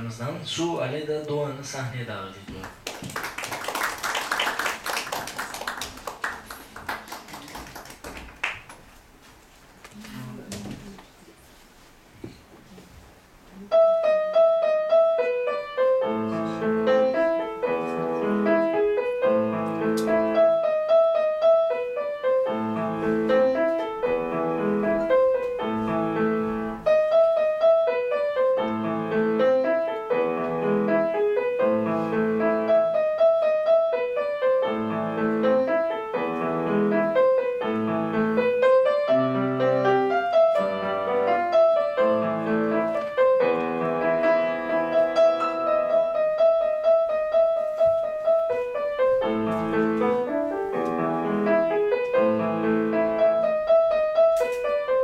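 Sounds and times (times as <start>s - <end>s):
grand piano solo: 13.7s - 55.0s.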